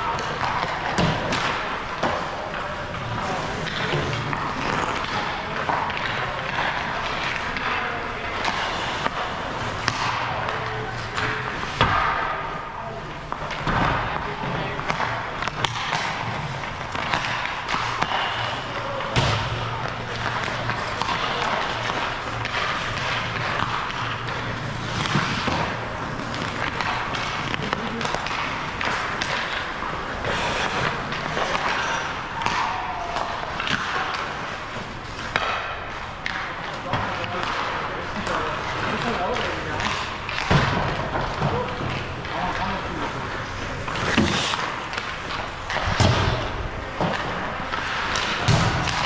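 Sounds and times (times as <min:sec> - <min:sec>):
skates scraping ice: 0:00.0 - 0:49.0
sticks and pucks clacking: 0:00.0 - 0:49.0.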